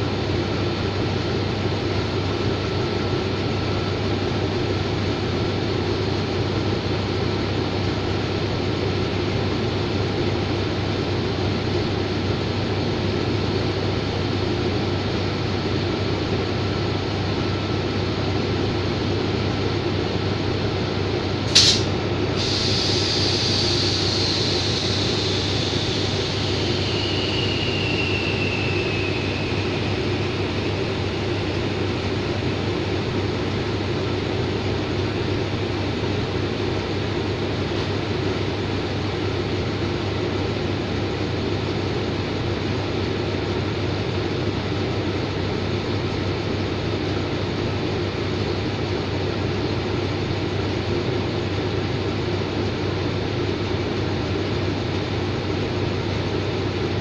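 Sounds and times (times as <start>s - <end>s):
locomotive engines idling: 13.2s - 39.0s
hiss of air: 21.5s - 36.0s
faint falling whine: 22.9s - 36.3s.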